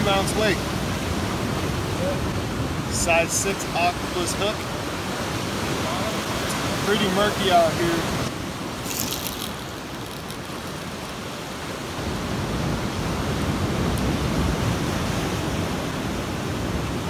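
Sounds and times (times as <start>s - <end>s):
ocean surf washing through rocks: 0.0s - 17.0s.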